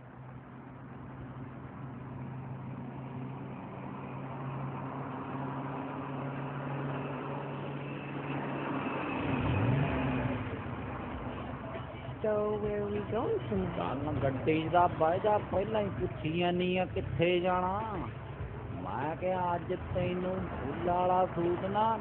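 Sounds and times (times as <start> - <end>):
car engine idling: 0.0 - 22.0.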